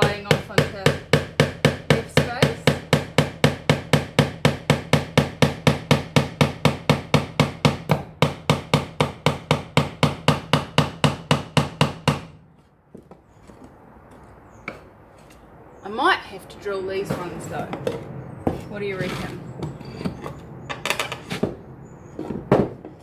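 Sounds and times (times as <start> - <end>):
hammer striking nails into wood: 0.0 - 12.4.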